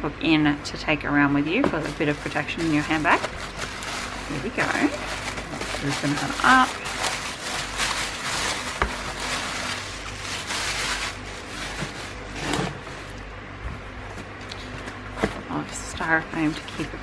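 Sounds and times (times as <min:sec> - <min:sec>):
plastic bag crinkling: 0:01.7 - 0:12.4.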